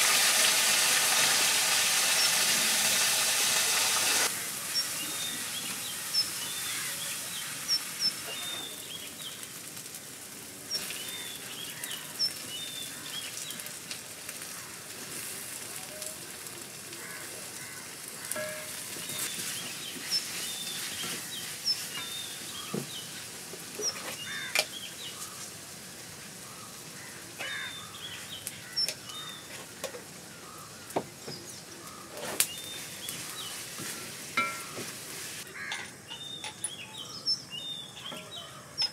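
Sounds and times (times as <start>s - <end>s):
low sizzle: 0.0s - 38.9s
birds chirping: 4.3s - 9.5s, 10.6s - 13.7s, 17.0s - 25.5s, 26.4s - 34.9s, 35.5s - 38.9s
wooden spatula scraping a pan: 18.2s - 23.0s, 32.0s - 35.8s.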